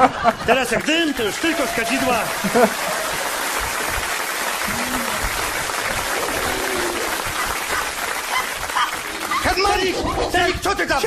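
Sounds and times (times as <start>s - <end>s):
audience applauding: 0.7s - 10.0s
people speaking: 4.7s - 5.3s.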